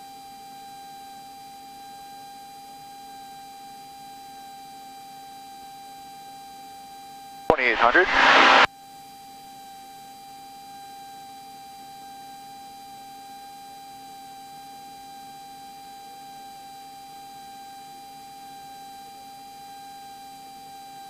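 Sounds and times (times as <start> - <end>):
high-pitched electrical whine: 7.7 - 8.7.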